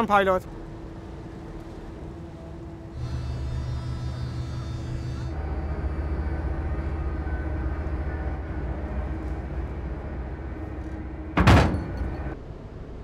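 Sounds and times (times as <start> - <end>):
boat engine drone: 0.0 - 13.0
loud thud: 11.4 - 12.4.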